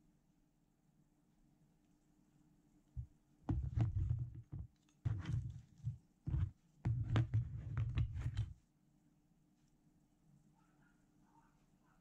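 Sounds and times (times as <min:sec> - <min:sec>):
dull bumps and light clacks: 0:03.0 - 0:08.5.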